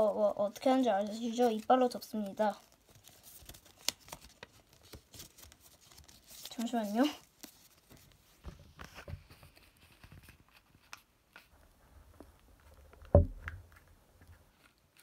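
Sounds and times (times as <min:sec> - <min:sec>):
paper rustling and clicking: 0:00.5 - 0:11.5
dull thump: 0:13.1 - 0:13.6.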